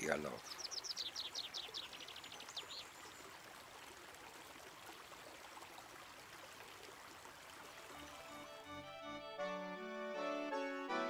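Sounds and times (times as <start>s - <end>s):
songbird trill: 0.0s - 3.3s
brook flowing over rocks: 0.0s - 8.8s.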